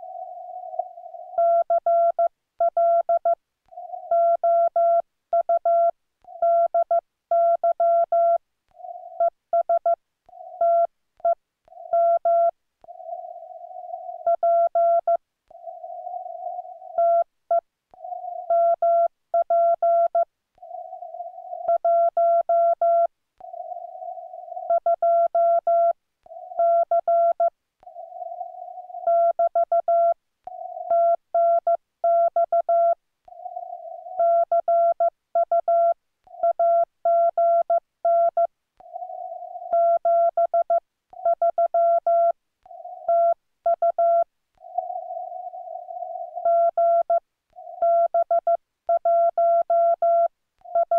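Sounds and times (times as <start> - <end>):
morse code beeps: 10.6 - 12.5, 29.0 - 33.0, 34.2 - 38.5, 39.7 - 42.3, 43.0 - 44.2, 44.8 - 47.2, 47.8 - 50.9.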